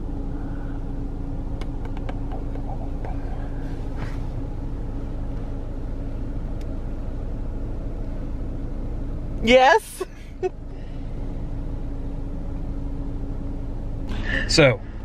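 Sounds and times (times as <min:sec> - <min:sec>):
car cabin rumble and hum: 0:00.0 - 0:15.0
soft rustle: 0:03.2 - 0:04.4.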